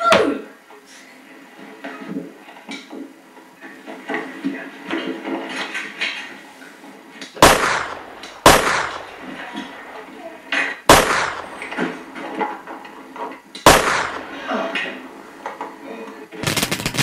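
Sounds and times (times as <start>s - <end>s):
gunshots: 7.4s - 10.0s, 10.8s - 12.0s, 13.6s - 14.5s, 16.4s - 17.0s
voices: 8.1s - 10.8s.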